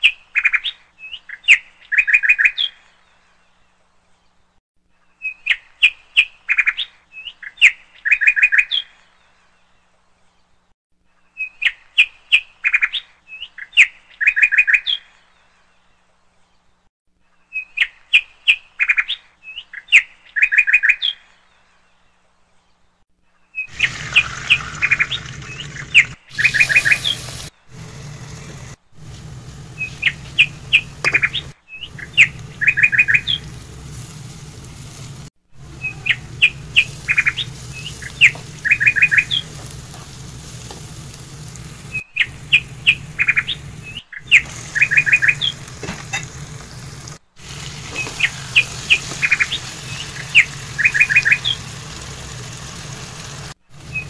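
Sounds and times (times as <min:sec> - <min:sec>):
high bird chirps: 0:23.5 - 0:27.9, 0:29.7 - 0:33.7, 0:35.6 - 0:40.0, 0:41.8 - 0:46.3, 0:47.9 - 0:51.7
onions sizzling in a pan: 0:23.7 - 0:54.0.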